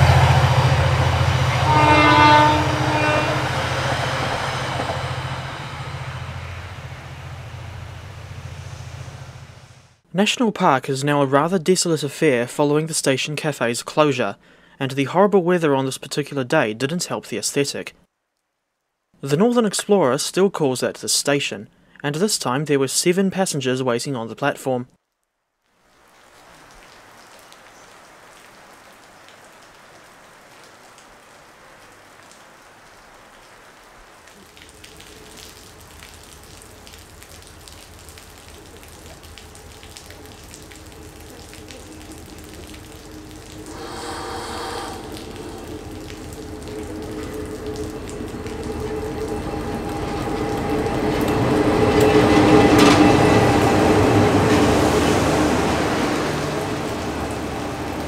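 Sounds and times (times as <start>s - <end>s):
diesel locomotive engine drone: 0.0s - 10.0s, 35.1s - 58.0s
rain hiss: 0.0s - 10.0s, 25.7s - 58.0s
train carriages passing: 0.0s - 10.0s, 35.1s - 58.0s.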